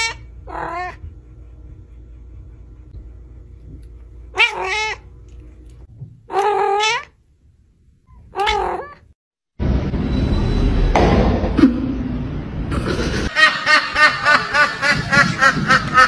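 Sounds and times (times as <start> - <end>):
cat meowing: 0.0 - 1.0, 4.3 - 5.0, 6.3 - 7.2, 8.3 - 9.1.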